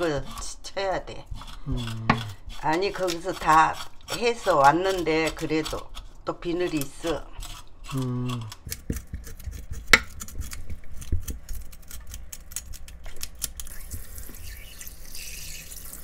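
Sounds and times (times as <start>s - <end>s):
knife scraping fish scales: 1.2s - 16.0s
tap water running: 13.6s - 16.0s.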